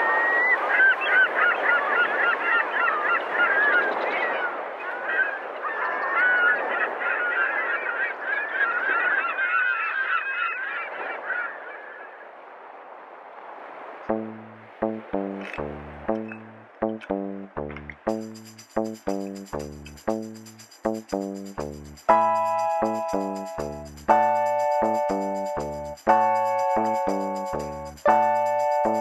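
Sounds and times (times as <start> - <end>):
flock of birds honking: 0.4 - 12.2.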